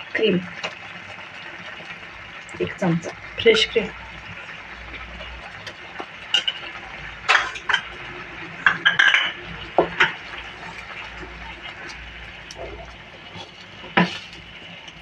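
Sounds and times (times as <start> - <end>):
soup bubbling in a pan: 0.0 - 15.0
utensil clinking against pan: 8.6 - 10.2
spatula stirring: 9.8 - 15.0.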